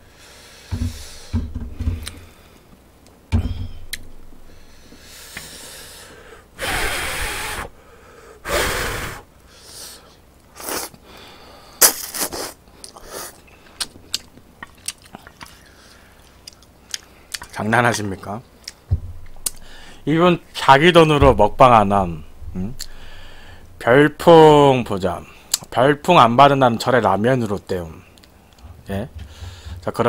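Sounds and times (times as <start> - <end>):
person slurping noodles: 10.6 - 11.0
chewing: 12.8 - 18.0.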